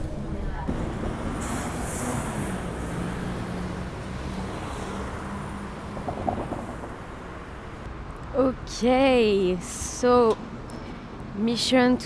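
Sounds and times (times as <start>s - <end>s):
bus engine driving past: 0.0s - 8.1s
street traffic: 0.0s - 12.0s.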